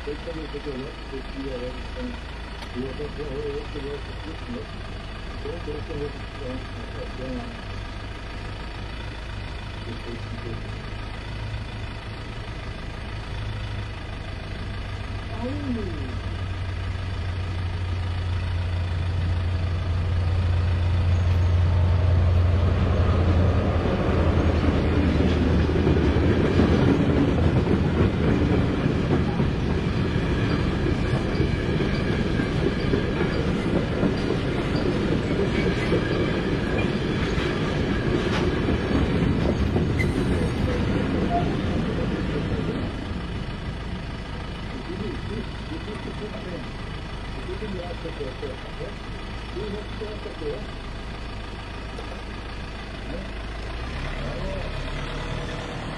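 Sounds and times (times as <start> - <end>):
diesel locomotive engine running: 0.0 - 55.9
train wheels clicking over rails: 18.6 - 48.9.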